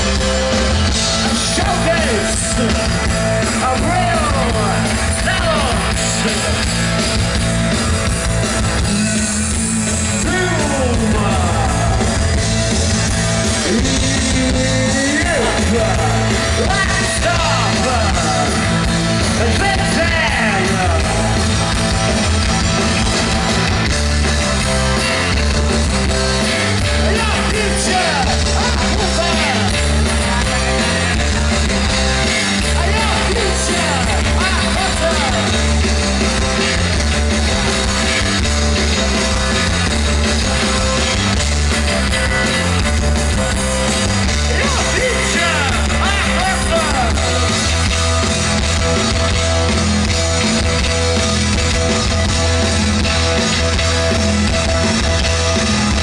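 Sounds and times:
bass guitar: 0.0 - 56.0
drum kit: 0.0 - 56.0
man singing and shouting: 1.2 - 6.8, 8.8 - 12.4, 13.5 - 21.3, 26.8 - 31.4, 32.6 - 35.7, 44.3 - 47.5.

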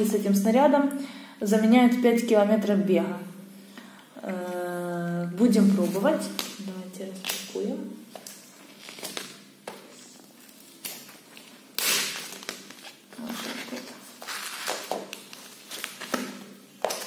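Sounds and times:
cardboard and paper tearing: 11.8 - 16.2.

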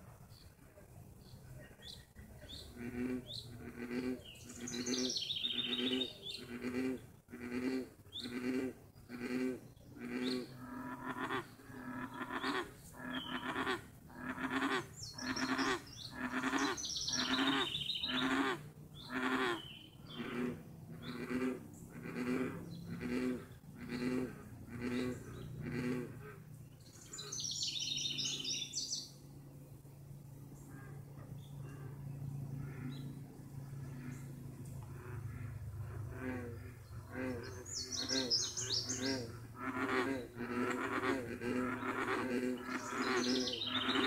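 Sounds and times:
faint birds calling: 0.0 - 44.0
bullfrogs croaking: 2.6 - 28.7, 33.7 - 44.0.

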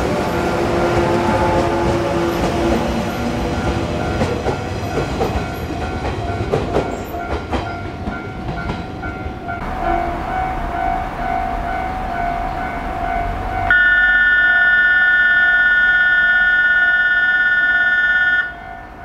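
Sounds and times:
electric train rumbling: 0.0 - 19.0
train horn chord: 0.2 - 3.0, 9.6 - 19.0.

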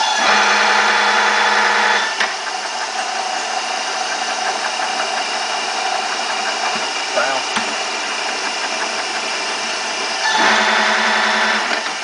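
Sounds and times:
milling machine gearing whirring: 0.0 - 12.0.

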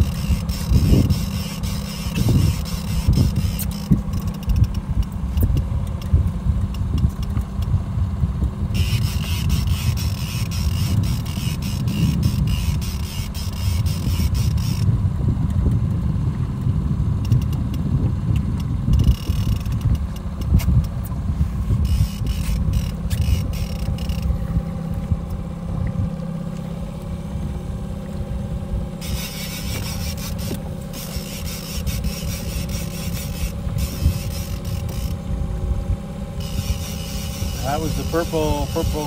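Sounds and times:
faint steady hum: 0.0 - 39.0
outboard motor running: 0.0 - 39.0.

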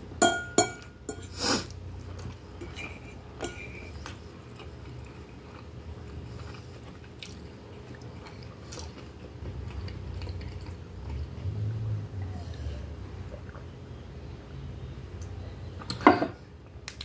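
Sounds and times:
close-miked chewing: 1.9 - 11.6.

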